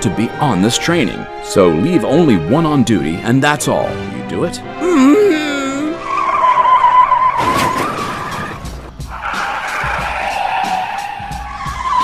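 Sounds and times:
background music: 0.0 - 12.0
tyres squealing: 4.8 - 12.0.

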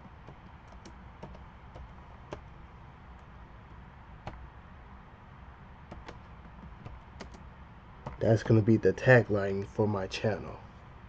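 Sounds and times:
low background noise: 0.0 - 11.0
keyboard key clicks: 5.9 - 7.4.

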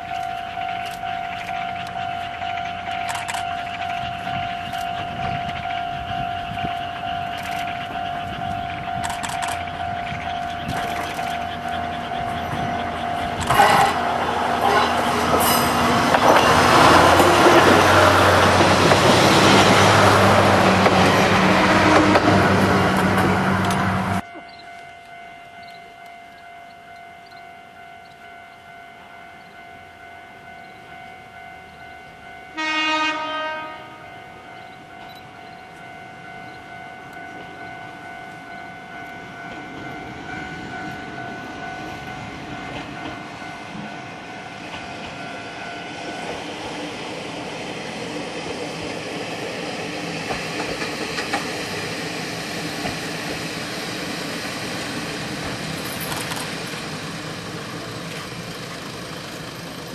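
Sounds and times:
diesel railcar engine: 0.0 - 59.9
train wheels on rails: 0.0 - 59.9
train horn blast: 13.4 - 15.8, 19.3 - 23.2, 32.5 - 34.5.

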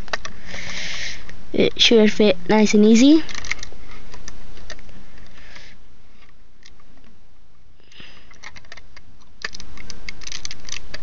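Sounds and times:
plastic bricks clicking: 8.3 - 11.0.

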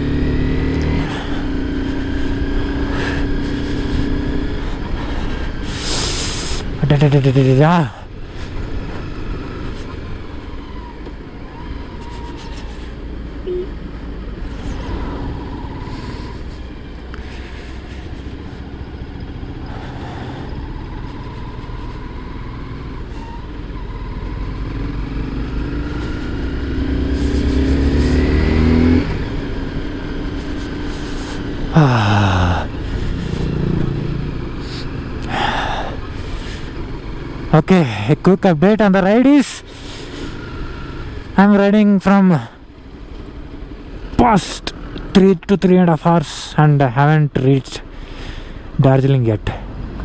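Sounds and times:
motorcycle engine running: 0.0 - 45.4
wind and road noise: 0.0 - 50.0.

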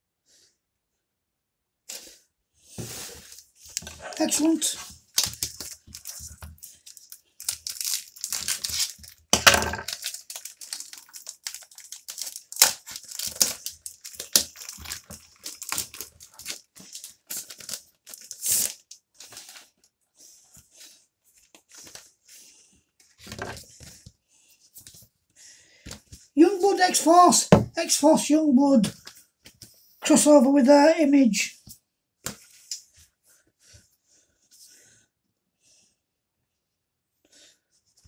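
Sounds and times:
packaging ripping and crinkling: 3.3 - 19.6.

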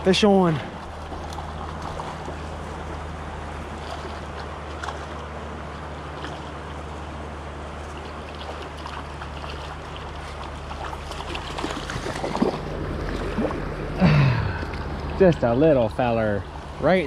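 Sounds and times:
creek water running over rocks: 0.0 - 17.0
low hum: 0.0 - 17.0
fish splashing at surface: 8.2 - 15.0.

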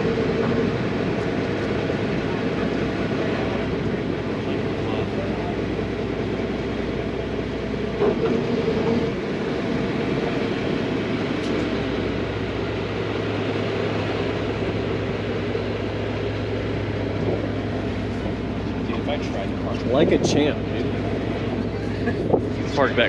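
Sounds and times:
boat engine running at low speed: 0.0 - 23.0.

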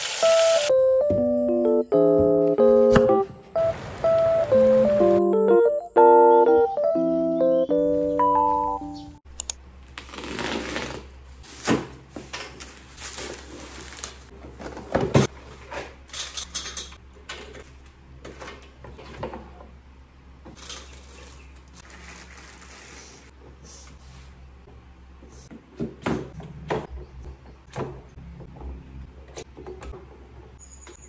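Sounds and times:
piano music: 0.2 - 9.2
cardboard and plastic rustling: 10.0 - 16.1, 20.5 - 23.3.

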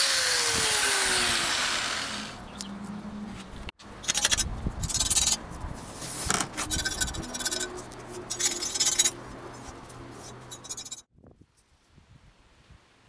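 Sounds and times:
steel tool scratching sheet metal: 4.0 - 5.4, 6.2 - 9.2, 10.2 - 11.1.

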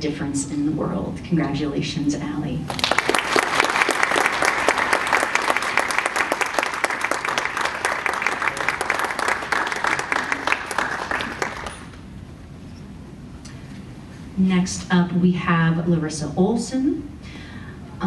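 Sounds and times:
audience applauding: 2.7 - 12.0.

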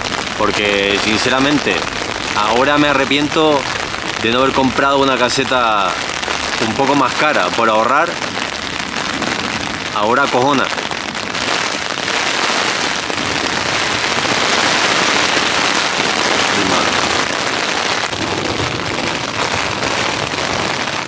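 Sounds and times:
heavy rain on tent fabric: 0.0 - 21.0.

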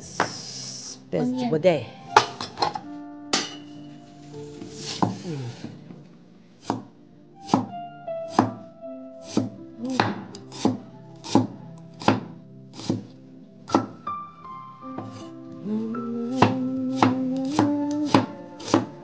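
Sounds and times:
background music: 0.0 - 19.0
knife chopping on cutting board: 6.6 - 7.7, 8.3 - 8.6, 9.2 - 13.1, 13.7 - 14.0, 16.4 - 18.9.

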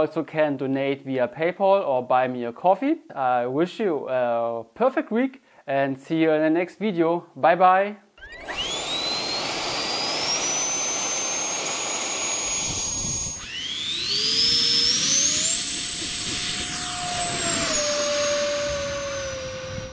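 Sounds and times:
electric ducted fan whining: 8.2 - 19.9.

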